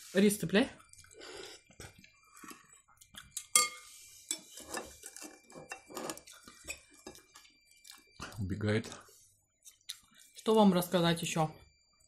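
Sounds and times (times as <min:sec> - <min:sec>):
faint eating noises: 0:00.7 - 0:10.6
cutlery clinking against bowls: 0:03.3 - 0:07.5.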